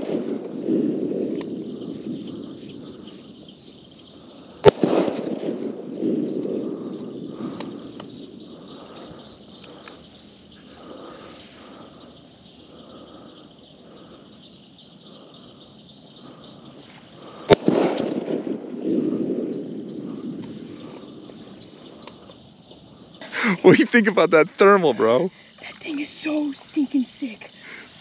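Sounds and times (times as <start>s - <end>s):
night insects trilling: 0.0s - 28.0s
rifle shot: 4.6s - 7.8s, 17.4s - 19.6s.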